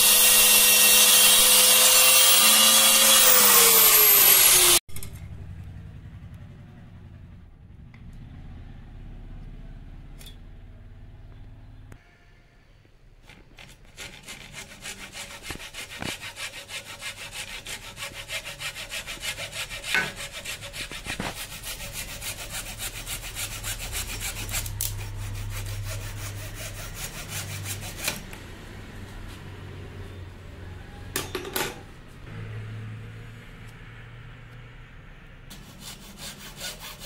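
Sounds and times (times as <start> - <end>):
saw cutting wood: 0.0 - 4.8, 13.6 - 28.4, 35.5 - 37.0.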